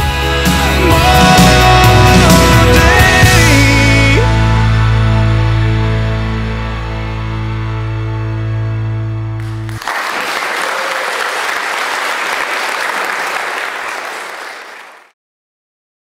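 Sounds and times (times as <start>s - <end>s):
sustained background music: 0.0s - 9.8s
guests applauding: 9.4s - 15.2s.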